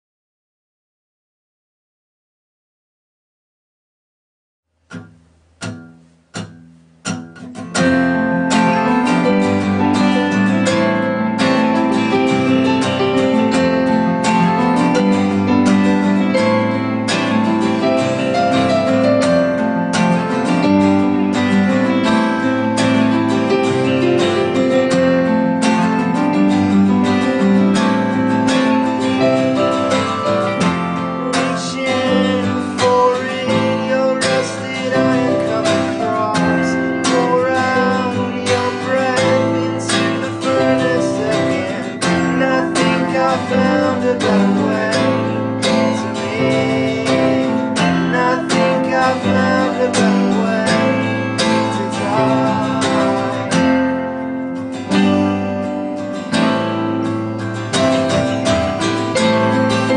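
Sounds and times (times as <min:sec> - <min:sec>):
electric guitar: 0:04.9 - 0:59.9
strummed acoustic guitar: 0:04.9 - 0:59.9
keyboard: 0:07.1 - 0:59.9.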